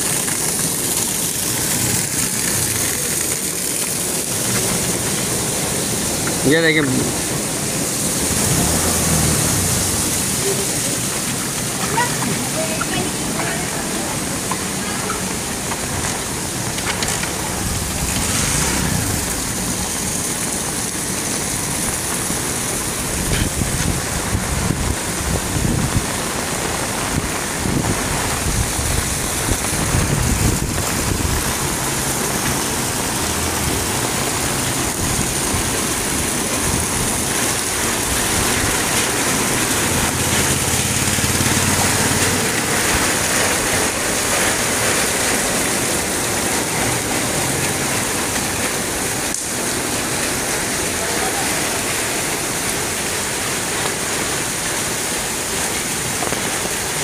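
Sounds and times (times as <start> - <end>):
heavy rain pouring: 0.0 - 57.0
running water: 0.0 - 57.0
low rumble: 17.2 - 20.5.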